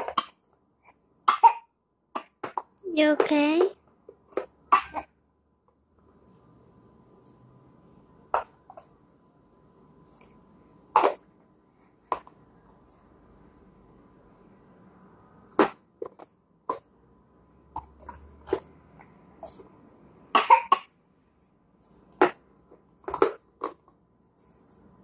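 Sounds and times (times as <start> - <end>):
plastic tubs clacking together: 22.1 - 24.0.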